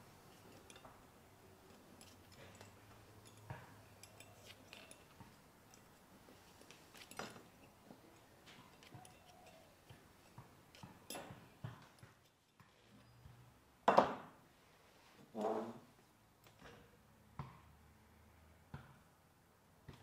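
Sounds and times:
metal parts clicking and tapping: 0.3 - 12.6.

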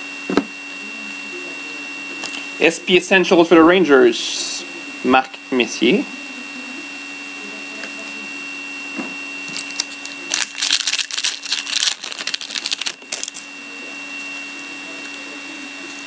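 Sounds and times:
steady hum: 0.0 - 16.0
foil pack crinkling and tearing: 9.5 - 13.5.

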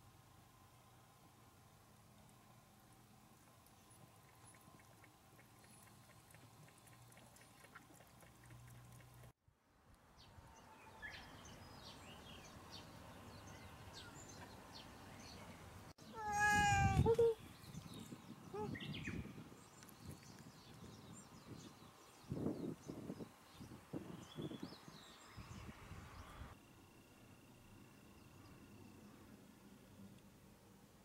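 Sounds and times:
cat lapping water: 4.1 - 9.3
cat meowing: 16.2 - 17.2.

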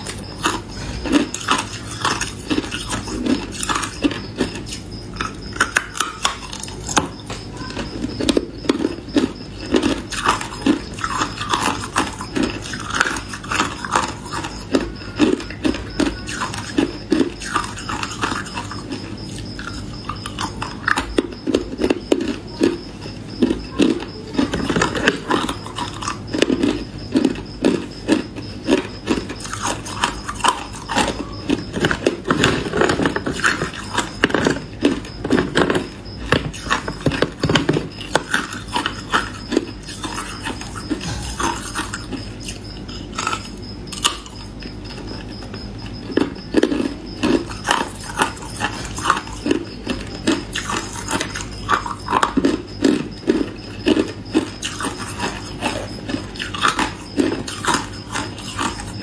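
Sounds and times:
ice crunching in mouth: 23.4 - 44.6, 46.0 - 59.0.

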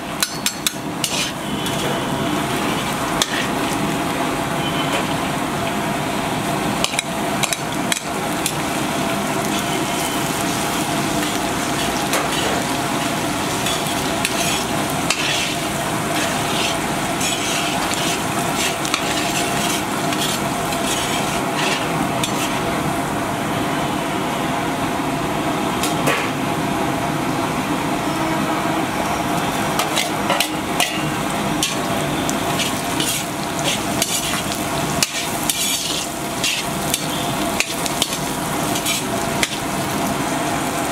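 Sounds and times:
hot oil sizzling: 0.0 - 23.7, 26.9 - 40.9
ladle scraping and clinking on pan: 0.3 - 1.8.

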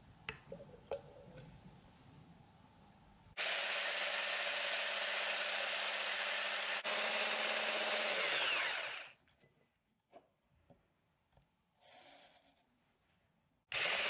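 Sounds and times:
immersion blender whipping cream: 3.4 - 9.2, 13.7 - 14.0.

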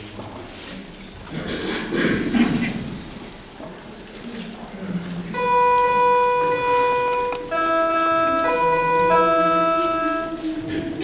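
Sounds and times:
organ-style keyboard chords: 5.3 - 11.0.

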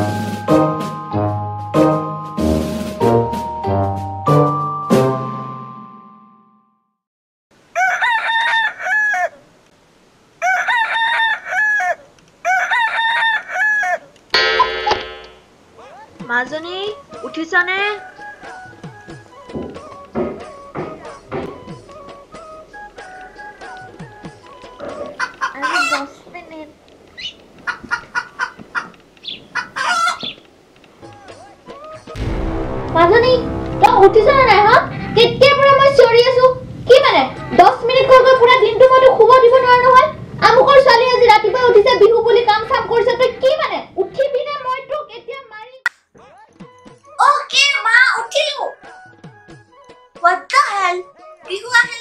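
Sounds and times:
rooster crowing: 7.7 - 9.4, 10.4 - 14.1, 29.6 - 30.2, 48.6 - 49.8
chickens clucking: 23.0 - 32.1.

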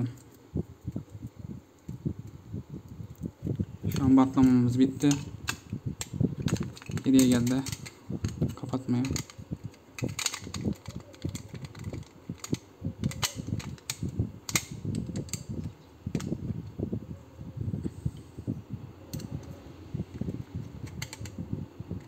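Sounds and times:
handling noise: 3.8 - 16.5, 19.2 - 22.0
plastic parts clicking and snapping: 3.9 - 16.3, 19.1 - 19.5, 20.1 - 21.4.

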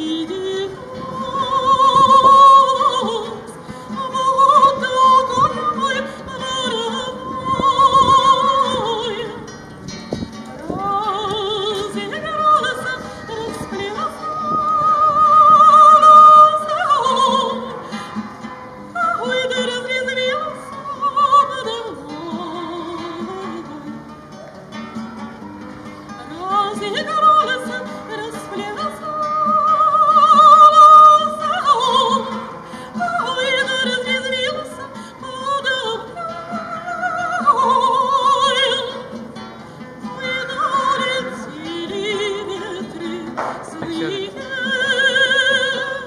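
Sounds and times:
woman singing with vibrato: 0.0 - 24.2, 26.2 - 46.0
strummed acoustic guitar: 0.0 - 46.0.

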